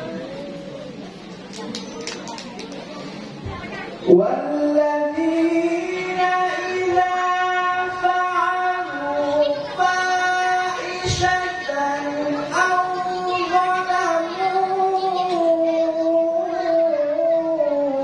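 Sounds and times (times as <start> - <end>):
man chanting recitation: 4.1 - 18.0.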